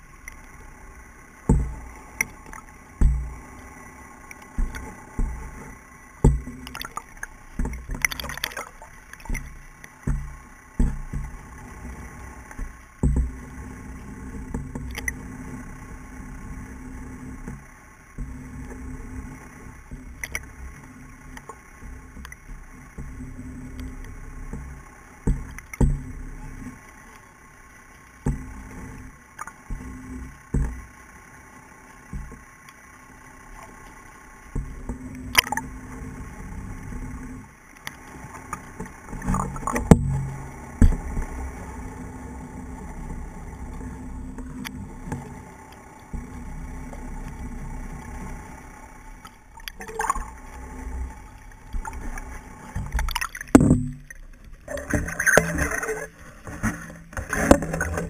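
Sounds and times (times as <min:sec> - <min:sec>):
water splashing: 0:00.0 - 0:13.3, 0:45.2 - 0:58.0
muffled water movement: 0:00.0 - 0:58.0
sharp knocks: 0:52.8 - 0:54.0.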